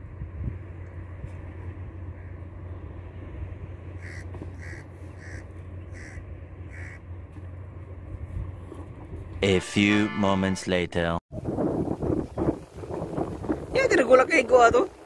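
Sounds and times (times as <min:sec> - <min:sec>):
steady low rumble: 0:00.0 - 0:15.0
bird giving short calls: 0:04.0 - 0:07.0.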